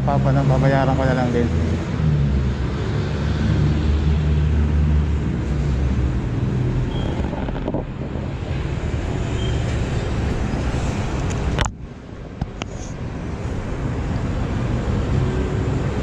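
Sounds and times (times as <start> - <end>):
vehicle engine humming: 2.0 - 16.0
wind rumbling on microphone: 5.0 - 16.0.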